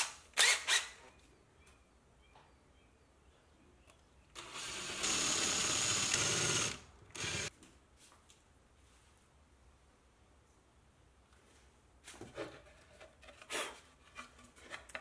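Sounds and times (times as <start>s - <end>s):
cordless drill boring through wood: 0.4s - 0.9s, 4.4s - 7.5s.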